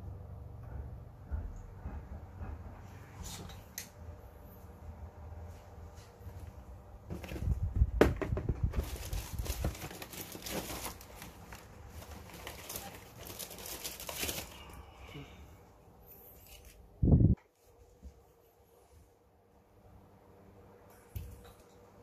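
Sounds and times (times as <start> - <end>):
hands rustling cables and tools: 5.5 - 15.3, 16.0 - 18.4.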